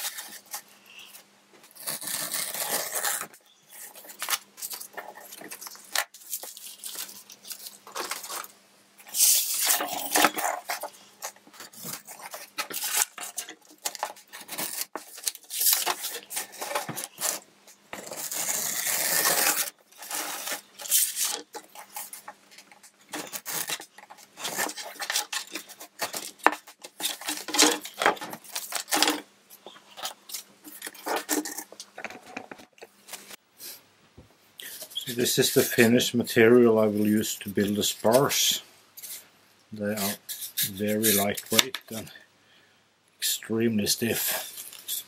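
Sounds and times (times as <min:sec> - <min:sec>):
film peeling: 0:01.6 - 0:33.4.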